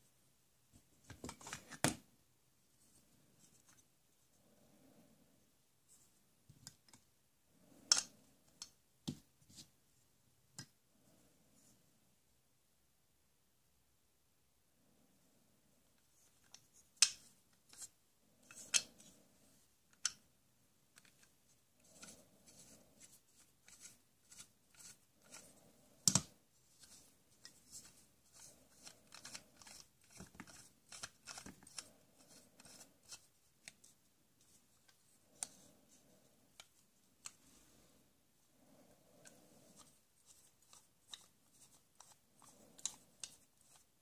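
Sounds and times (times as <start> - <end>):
plastic toy clicks and rubbing: 7.8 - 8.8, 16.1 - 19.2, 20.9 - 37.5, 39.2 - 44.0.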